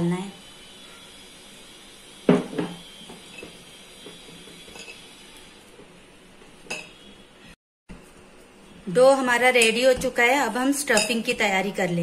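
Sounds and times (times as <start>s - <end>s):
glass bowl clinking: 4.6s - 5.1s, 6.7s - 7.0s, 10.9s - 11.3s.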